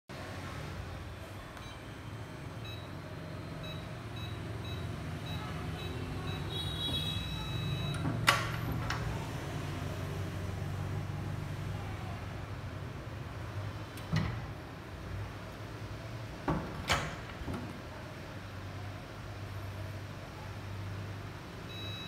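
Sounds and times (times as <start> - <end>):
keypad beeps: 1.6 - 3.0, 3.6 - 8.2, 21.7 - 22.0
lock mechanism clunk: 16.4 - 17.8.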